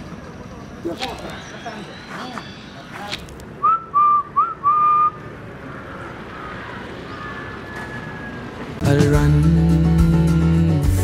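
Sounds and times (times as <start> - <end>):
person whistling short notes: 3.6 - 5.2.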